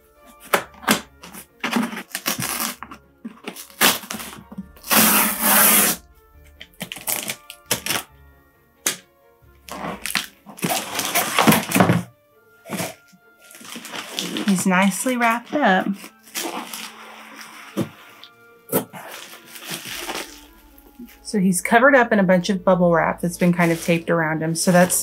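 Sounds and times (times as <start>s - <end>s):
background music: 0.0s - 25.0s
cardboard and paper crinkling: 0.3s - 5.0s, 9.7s - 21.2s, 23.4s - 25.0s
packing tape ripping: 0.4s - 6.0s, 6.6s - 8.1s, 9.6s - 20.6s.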